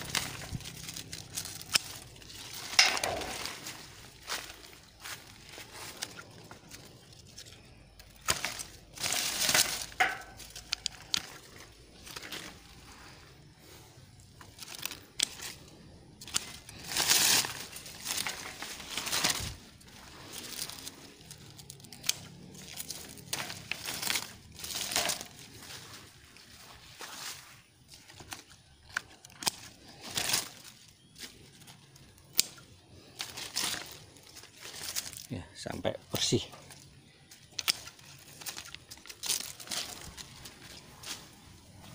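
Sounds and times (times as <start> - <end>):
pruning shears snipping: 0.0 - 5.2, 16.2 - 19.4
leaves rustling: 0.0 - 41.9.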